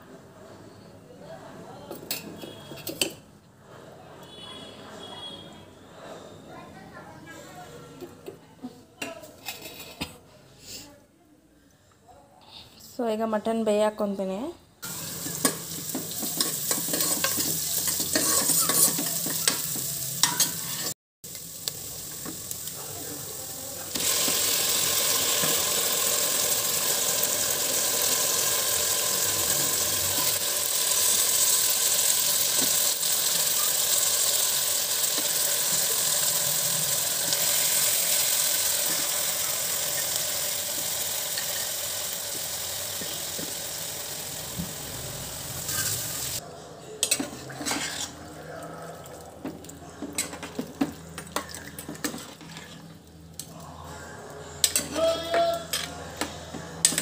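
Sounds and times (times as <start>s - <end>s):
oil sizzling: 14.8s - 46.4s.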